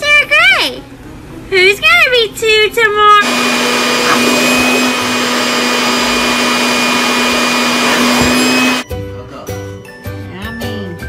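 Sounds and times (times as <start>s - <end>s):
leaf blower whining: 3.2s - 8.8s.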